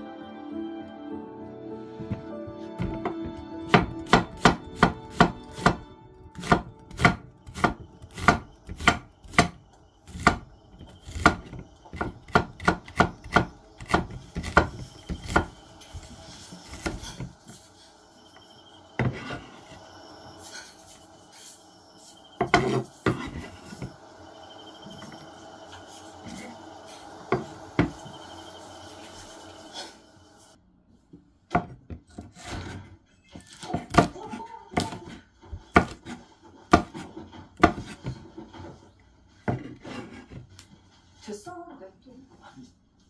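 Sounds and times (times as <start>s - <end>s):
knife slicing onion: 2.8s - 17.6s, 22.4s - 24.0s, 33.5s - 38.3s.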